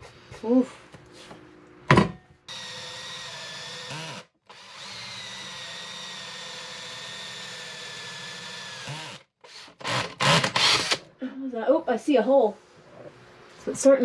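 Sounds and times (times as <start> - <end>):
drill hole saw whining through wood: 2.5 - 11.0.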